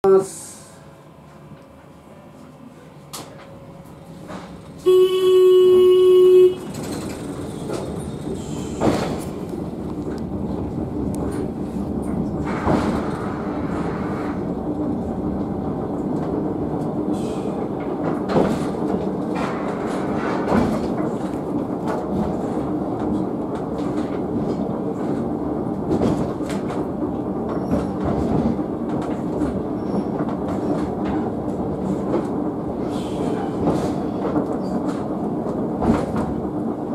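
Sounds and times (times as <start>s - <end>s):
wheels rumbling on rails: 0.2s - 36.9s
loud signal tone: 4.8s - 6.8s.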